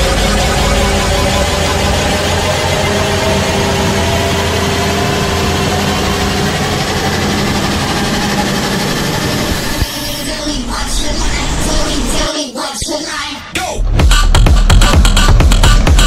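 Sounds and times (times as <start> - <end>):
diesel engine running under load: 0.0 - 12.2.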